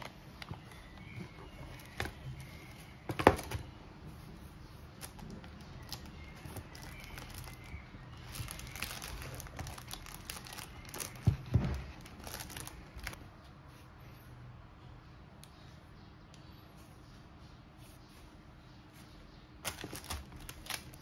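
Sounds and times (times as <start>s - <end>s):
bubble wrap crinkling: 5.0s - 13.2s, 19.6s - 21.0s.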